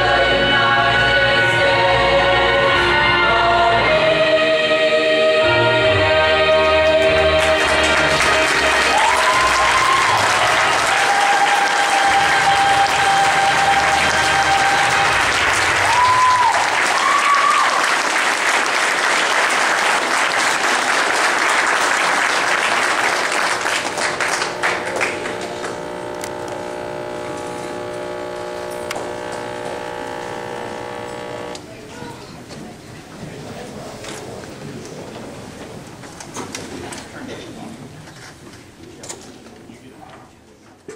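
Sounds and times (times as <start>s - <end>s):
audience applauding: 6.8s - 31.6s.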